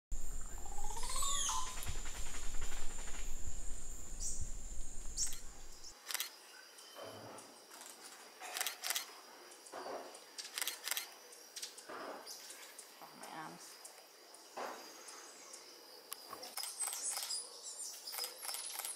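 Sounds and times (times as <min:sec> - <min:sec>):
low rumble: 0:00.1 - 0:05.9
bird calls: 0:00.2 - 0:06.0
sharp clicks: 0:04.7 - 0:06.3.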